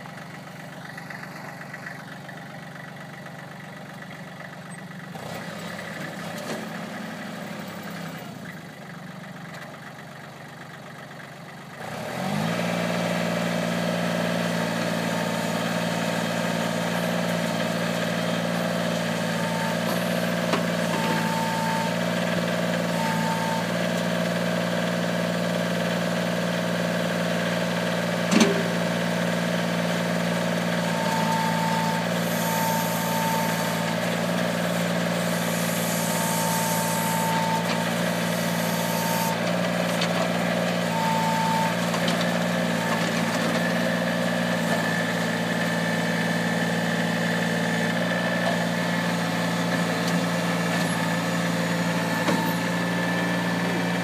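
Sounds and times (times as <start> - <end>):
diesel engine running: 0.0 - 54.0
hydraulic whine: 30.8 - 46.3, 46.9 - 54.0.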